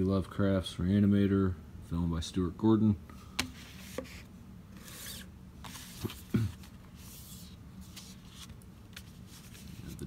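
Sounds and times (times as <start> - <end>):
paper packaging rubbing and sliding: 3.6 - 10.0.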